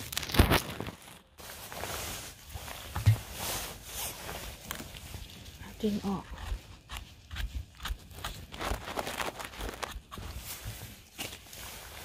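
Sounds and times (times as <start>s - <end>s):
footsteps on leaves and twigs: 0.0s - 12.0s.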